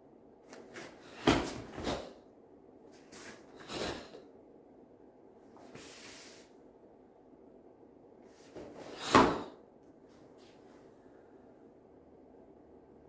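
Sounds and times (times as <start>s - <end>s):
foot thump on mat: 0.8s - 2.1s.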